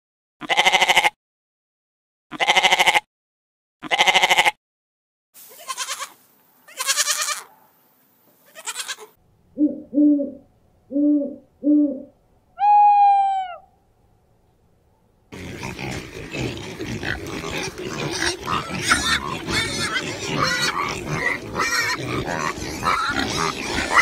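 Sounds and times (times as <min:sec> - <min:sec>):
goat bleating: 0:00.4 - 0:01.2, 0:02.3 - 0:03.1, 0:03.8 - 0:04.6, 0:05.4 - 0:07.5, 0:08.5 - 0:09.2
owl hooting: 0:09.6 - 0:13.7.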